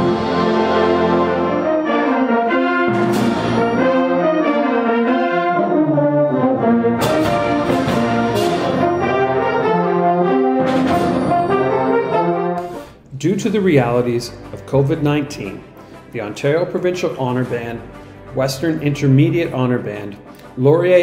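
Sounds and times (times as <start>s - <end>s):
concert band playing: 0.0s - 12.9s
sharp percussion hits: 2.8s - 4.2s, 7.0s - 13.0s, 17.1s - 19.3s.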